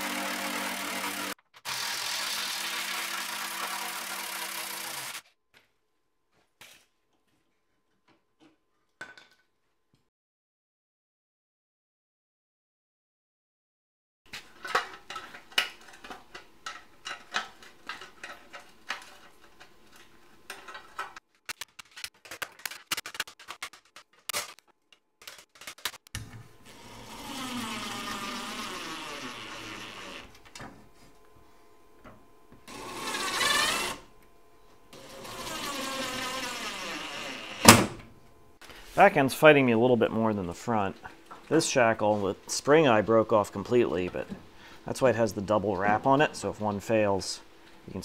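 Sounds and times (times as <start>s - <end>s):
cordless drill driving screws: 0.0s - 5.2s, 26.7s - 30.3s, 32.7s - 34.0s, 35.0s - 37.7s.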